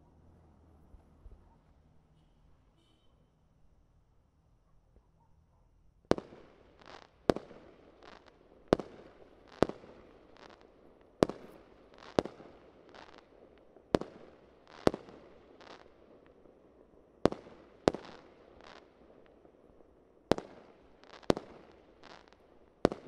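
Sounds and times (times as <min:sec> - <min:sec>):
fireworks bangs: 0:20.3 - 0:23.0.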